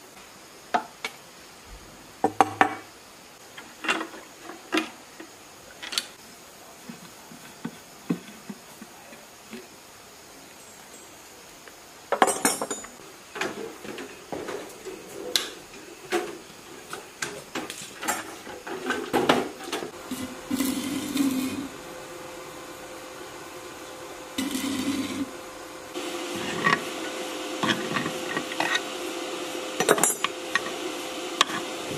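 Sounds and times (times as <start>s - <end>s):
metal tools clinking: 12.2s - 13.0s
steady hum: 18.8s - 31.9s.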